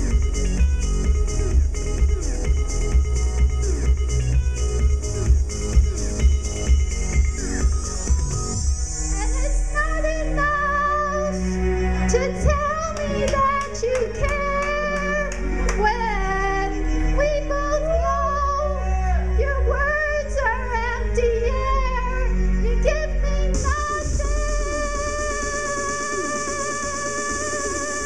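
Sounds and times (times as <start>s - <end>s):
electronic backing track with bass: 0.0s - 28.0s
woman singing: 12.1s - 28.0s.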